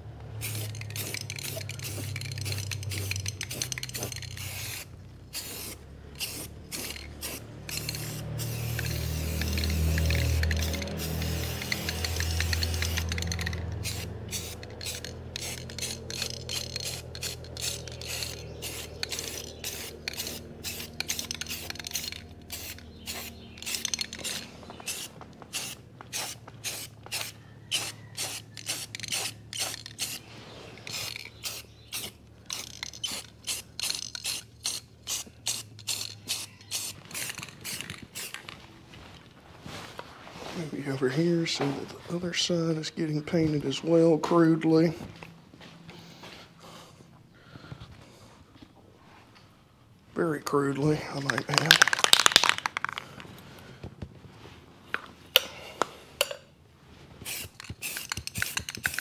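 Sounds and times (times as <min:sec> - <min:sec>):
aerosol spray can hissing: 0:00.4 - 0:38.4, 0:51.3 - 0:53.0, 0:57.2 - 0:59.0.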